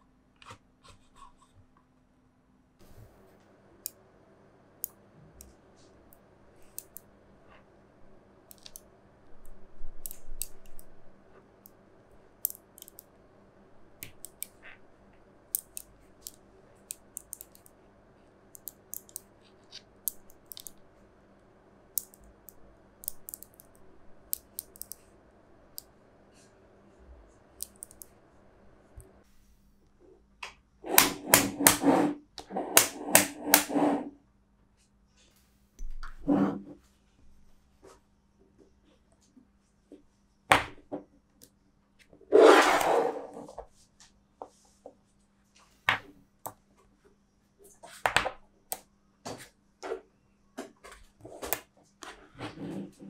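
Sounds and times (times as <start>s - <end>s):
magnetic balls clicking: 12.4s - 13.1s, 15.5s - 17.7s, 18.5s - 20.8s, 21.9s - 25.0s, 27.6s - 28.1s.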